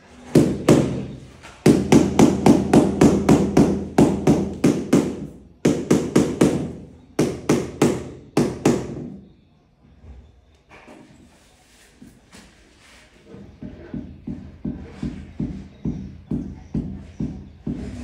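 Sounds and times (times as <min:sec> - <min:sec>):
rapid hammering: 0:00.3 - 0:09.2, 0:13.6 - 0:18.0.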